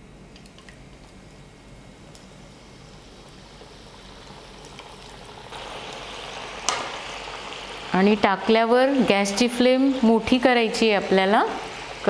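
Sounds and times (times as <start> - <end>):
potatoes sizzling in hot oil: 3.0 - 12.0.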